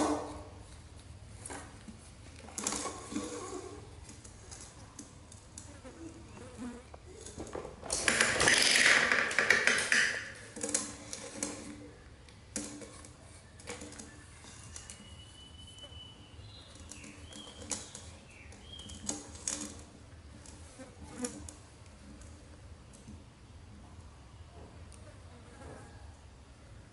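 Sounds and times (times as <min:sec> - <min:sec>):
tin rolling on tiled floor: 0:07.2 - 0:11.9.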